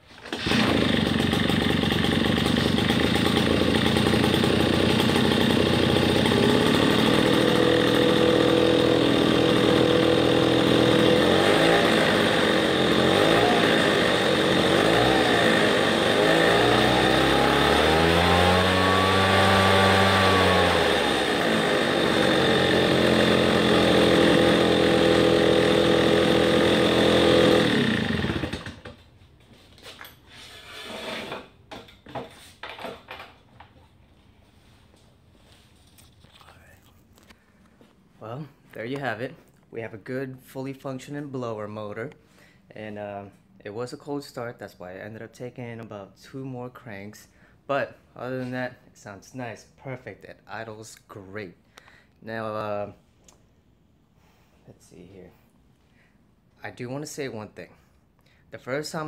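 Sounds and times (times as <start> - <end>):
leaf blower engine revving and idling: 0.2 - 29.0.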